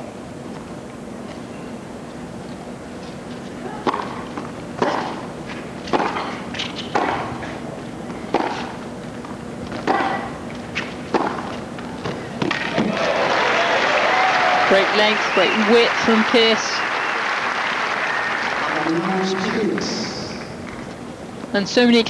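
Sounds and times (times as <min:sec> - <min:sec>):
tennis ball hit with rackets: 0:03.8 - 0:07.5, 0:08.3 - 0:08.8, 0:09.7 - 0:12.9.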